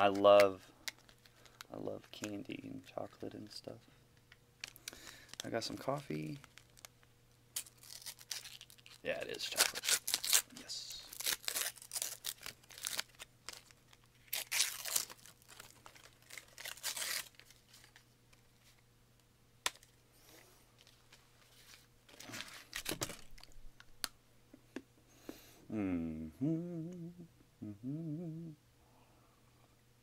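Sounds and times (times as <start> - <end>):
wrapper tearing and crinkling: 4.6 - 18.0, 22.1 - 23.6.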